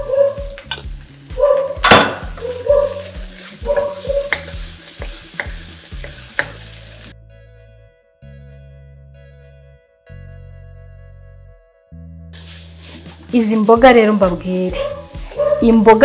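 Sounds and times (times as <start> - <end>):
vegetables sizzling in a wok: 0.0 - 7.2, 12.4 - 16.0
background music: 0.0 - 16.0
spatula knocking against pan: 1.8 - 2.8, 3.7 - 6.6.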